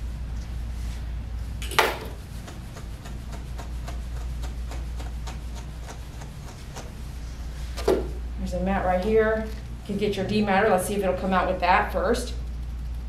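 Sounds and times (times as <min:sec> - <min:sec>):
steady low hum: 0:00.0 - 0:13.0
comb ticking through hair: 0:02.0 - 0:07.1.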